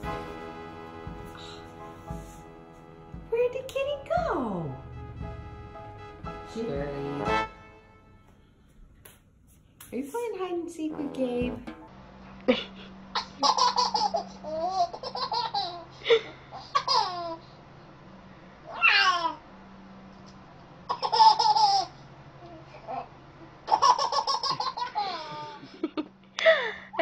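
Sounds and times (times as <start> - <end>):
faint steady hum: 7.7 - 27.0
baby giggling: 13.2 - 17.4, 20.9 - 22.0, 23.7 - 25.8.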